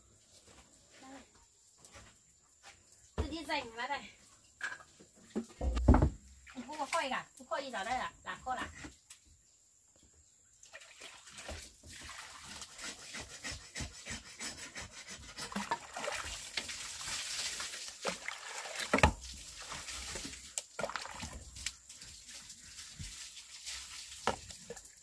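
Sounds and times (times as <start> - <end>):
water splashing into plastic basin: 5.2 - 7.3, 10.6 - 12.8, 15.4 - 25.0
knife scraping hard object: 12.8 - 15.6.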